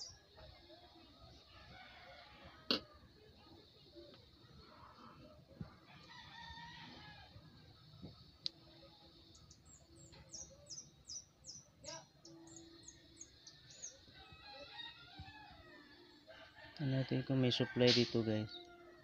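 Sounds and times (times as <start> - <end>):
faint rooster crowing: 1.4 - 3.0, 4.6 - 7.6, 13.1 - 19.0
small bird chirping: 9.2 - 14.5.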